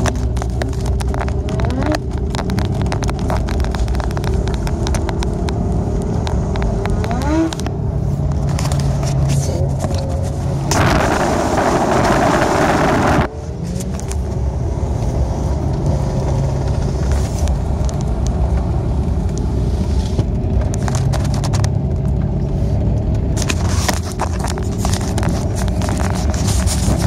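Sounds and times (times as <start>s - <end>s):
crackling clicks: 0.0s - 10.1s
car engine and tyres rumbling: 0.0s - 27.0s
rushing noise: 8.8s - 13.5s.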